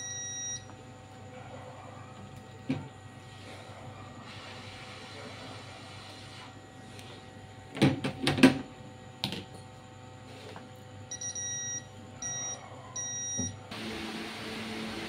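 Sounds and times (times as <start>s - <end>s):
multimeter continuity beeps: 0.0s - 0.8s, 11.1s - 13.6s.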